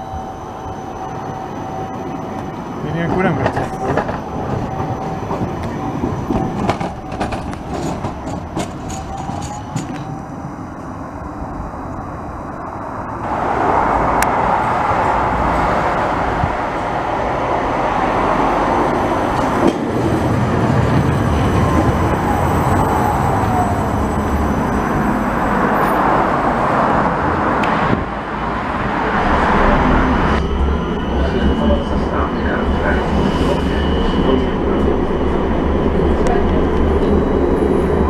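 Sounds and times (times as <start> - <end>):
tram wheels rumbling on rails: 0.0 - 38.0.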